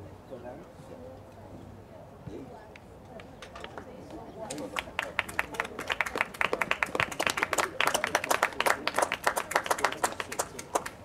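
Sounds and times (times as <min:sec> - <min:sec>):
people clapping: 0:03.2 - 0:11.0.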